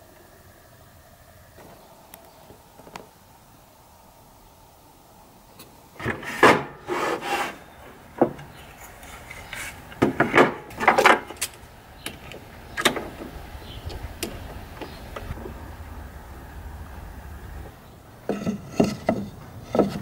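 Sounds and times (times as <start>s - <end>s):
clamps sliding and tightening: 6.0s - 7.6s, 8.4s - 11.5s
wooden knocks and scrapes: 8.2s - 11.3s, 17.6s - 20.0s.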